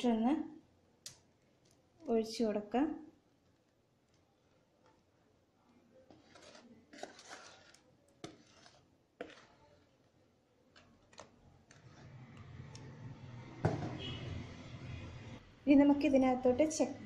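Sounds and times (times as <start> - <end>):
whisk scraping plastic bowl: 6.1 - 10.1, 10.7 - 12.8.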